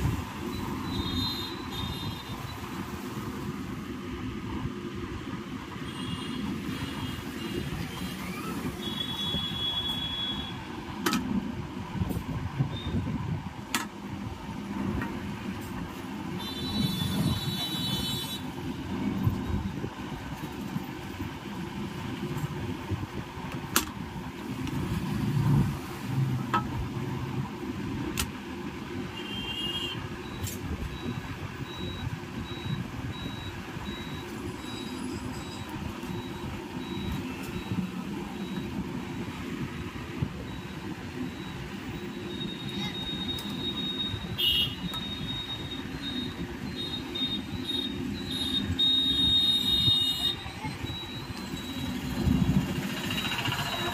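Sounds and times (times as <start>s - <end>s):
rumble of passing vehicles: 0.0s - 53.9s
short high-pitched beeps: 29.6s - 39.2s, 40.5s - 53.9s.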